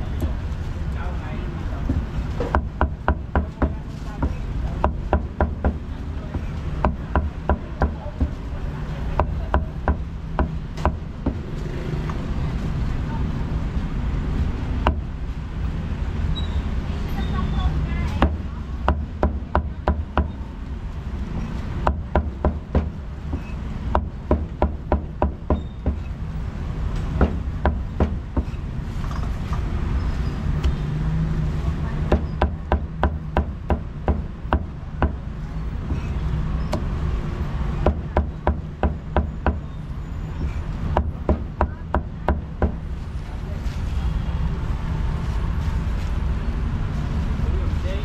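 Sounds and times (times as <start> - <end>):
low rumble of street noise: 0.0 - 48.0
cleaver chopping meat on wood: 1.9 - 8.4, 21.8 - 26.0, 27.1 - 28.6, 32.1 - 35.2.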